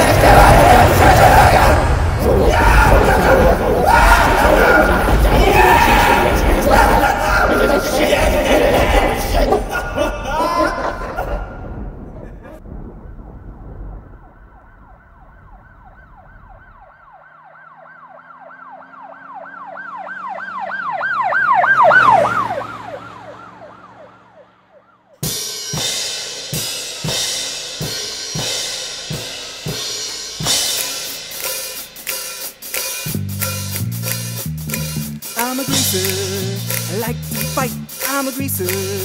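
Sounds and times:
emergency vehicle siren wailing: 0:00.0 - 0:10.1, 0:12.9 - 0:25.4
music with drum kit: 0:25.2 - 0:39.0.

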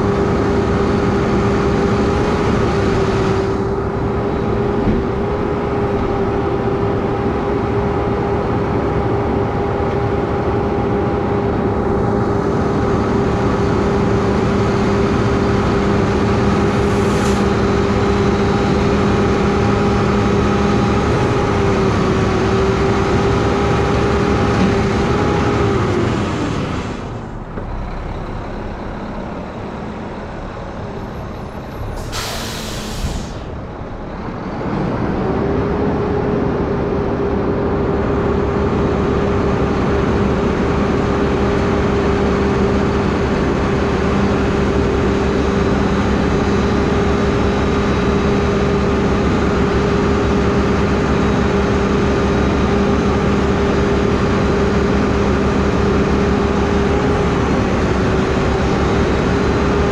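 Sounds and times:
garbage truck engine droning: 0:00.0 - 0:59.9
air brake hissing: 0:16.8 - 0:17.5, 0:31.8 - 0:33.6.

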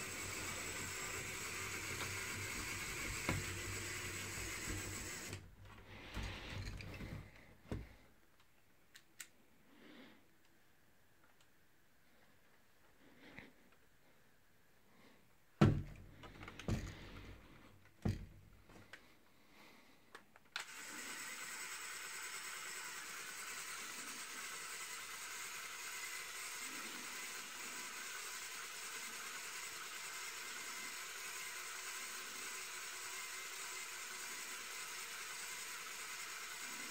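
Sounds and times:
small electric motor whirring: 0:00.0 - 0:05.4, 0:20.6 - 0:36.9
plastic parts knocking and clicking: 0:15.6 - 0:19.0.

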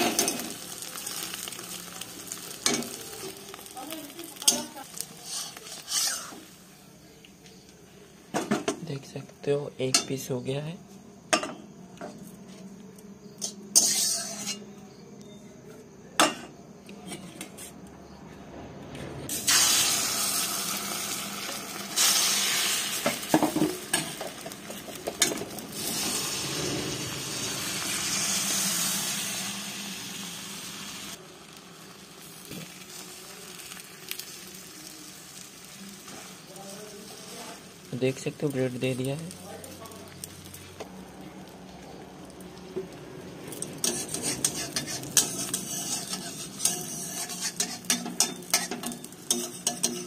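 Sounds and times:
egg sizzling in hot oil: 0:00.0 - 0:07.0, 0:13.4 - 0:14.6, 0:19.3 - 0:50.0
spoon scraping a pan: 0:04.4 - 0:06.6, 0:13.4 - 0:14.7, 0:43.6 - 0:50.0
metal spatula clinking on pan: 0:43.8 - 0:50.0.

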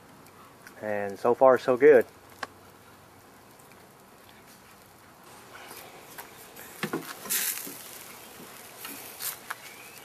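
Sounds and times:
faint steady hiss: 0:00.0 - 0:10.0.

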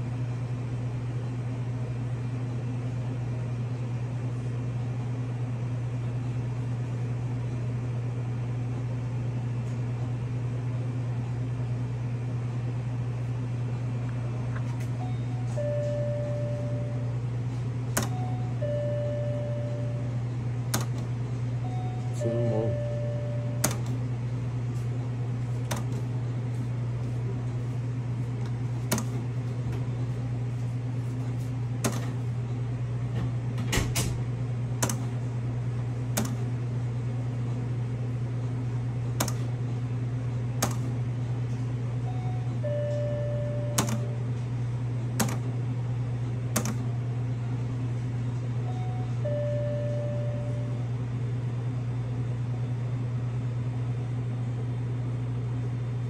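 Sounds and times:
game machine low hum: 0:00.0 - 0:56.0
short beeps: 0:15.0 - 0:17.1, 0:18.0 - 0:20.2, 0:21.6 - 0:23.7, 0:48.7 - 0:50.8.

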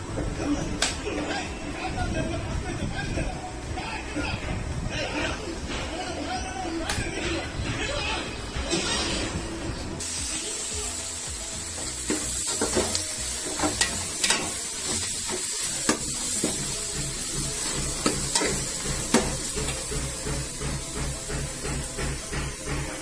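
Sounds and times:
onions sizzling in hot oil: 0:10.0 - 0:22.0
spatula clanking against metal pot: 0:12.1 - 0:16.8, 0:17.6 - 0:19.8.

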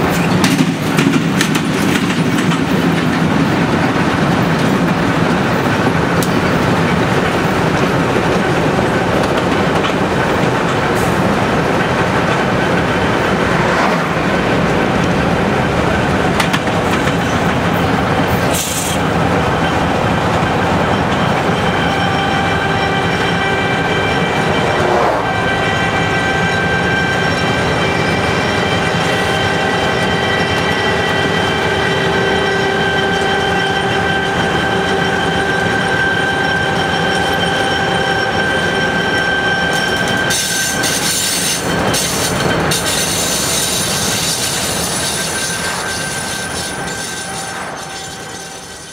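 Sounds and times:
freight train rumbling: 0:00.0 - 0:48.9
high wheel squeal: 0:17.0 - 0:48.9.

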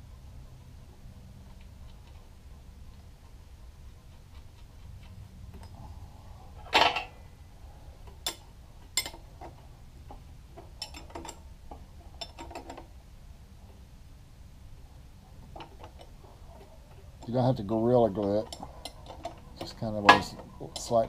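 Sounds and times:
low steady hum: 0:00.0 - 0:21.0
metal tools clinking on gears: 0:17.2 - 0:21.0.

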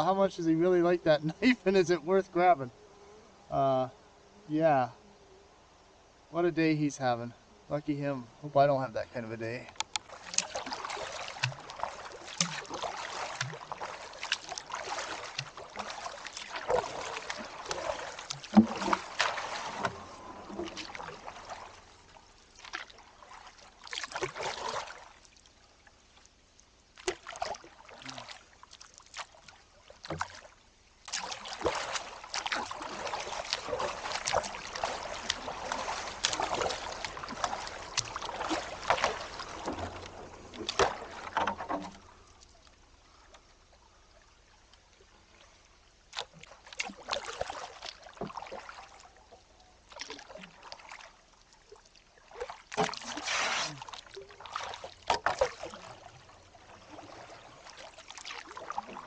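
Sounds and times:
paddle strokes splashing water: 0:08.9 - 0:26.3, 0:26.9 - 0:59.0
paddle clicks and knocks: 0:09.7 - 0:10.6, 0:33.5 - 0:42.1, 0:55.0 - 0:55.7.

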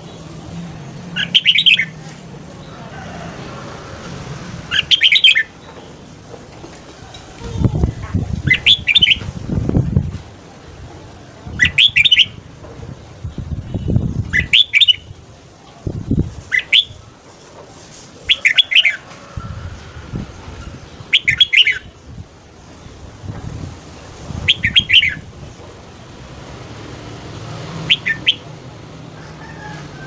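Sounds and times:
bird singing warbled phrases: 0:01.2 - 0:02.0, 0:04.7 - 0:05.6, 0:07.8 - 0:09.3, 0:11.5 - 0:12.4, 0:13.7 - 0:15.2, 0:20.8 - 0:22.2, 0:24.4 - 0:25.3, 0:27.9 - 0:28.5
low thumps and rumbles: 0:09.2 - 0:10.4.

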